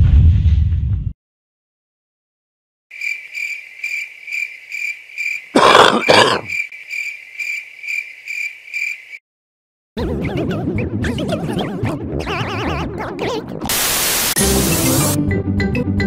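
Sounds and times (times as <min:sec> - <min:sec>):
cricket chirp sound effect: 0:02.9 - 0:09.2
cartoon pig snort: 0:05.6 - 0:06.6.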